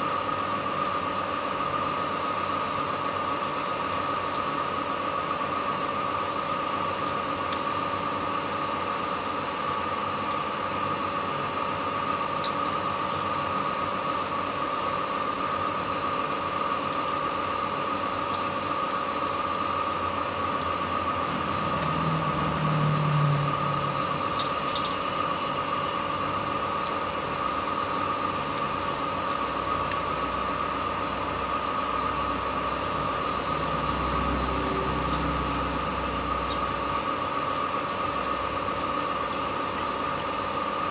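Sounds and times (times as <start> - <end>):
mechanical hum with whine: 0.0 - 40.9
low rumble: 21.0 - 24.7, 32.8 - 37.0.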